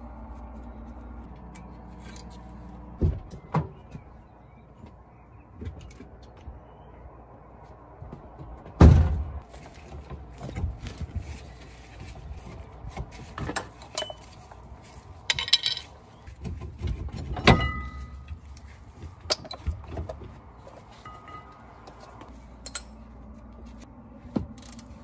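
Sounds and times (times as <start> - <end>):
metal clinks: 22.6 - 23.0.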